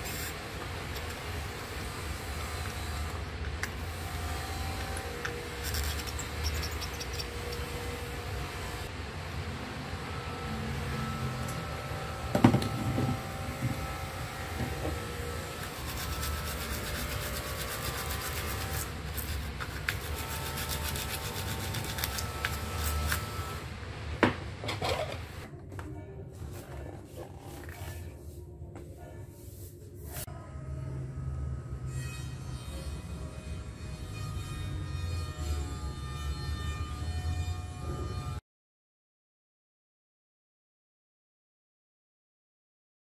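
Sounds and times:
scraping on circuit board: 0:04.8 - 0:07.9, 0:15.6 - 0:23.6.

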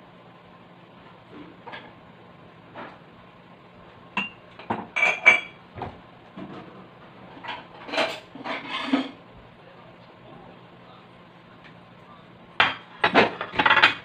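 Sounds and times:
kitchen utensils and dishes clattering: 0:04.2 - 0:09.2, 0:12.6 - 0:14.0.

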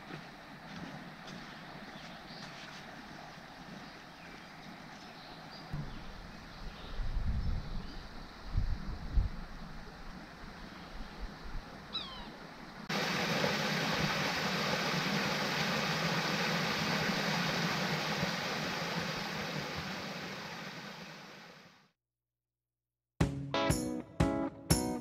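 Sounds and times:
small waterfall splashing: 0:11.8 - 0:21.8
short bird call: 0:11.9 - 0:12.4.

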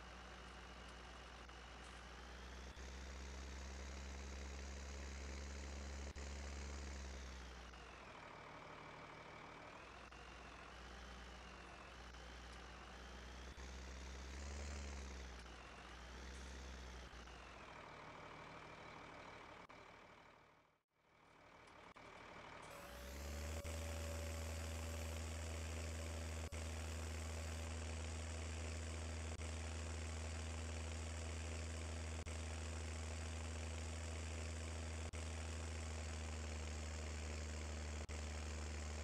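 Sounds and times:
combine harvester engine running: 0:21.4 - 0:39.0.

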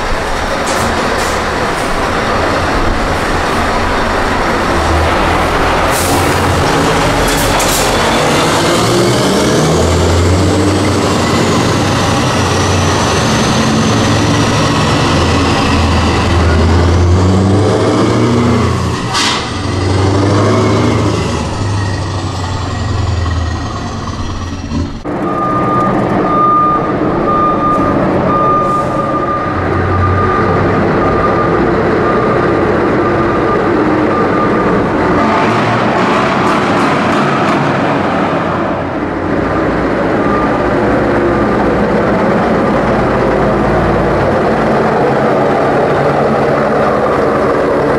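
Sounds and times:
loud truck engines passing: 0:00.0 - 0:47.9
repeated high beep: 0:25.2 - 0:34.8.

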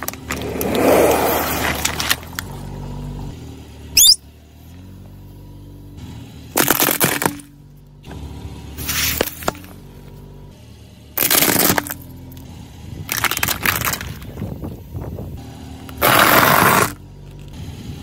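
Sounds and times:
tyre crushing objects: 0:16.0 - 0:17.0.

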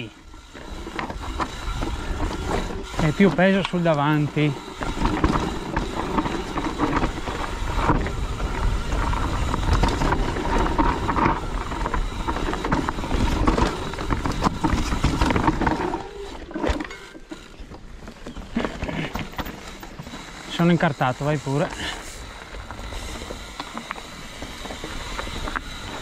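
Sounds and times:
bike clattering over rocks: 0:00.3 - 0:20.5
wind rumble on microphone: 0:04.9 - 0:15.9.

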